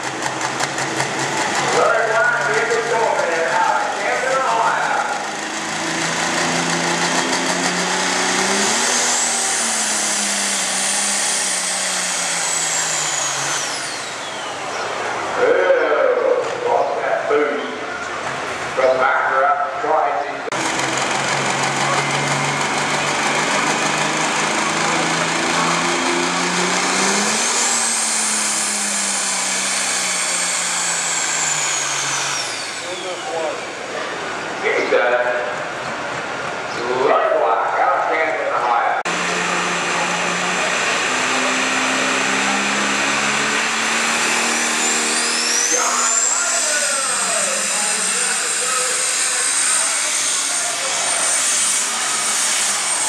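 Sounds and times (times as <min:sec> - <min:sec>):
diesel engine under load: 0:00.0 - 0:53.0
high turbo whistle: 0:06.6 - 0:14.9, 0:25.6 - 0:33.8, 0:40.9 - 0:53.0.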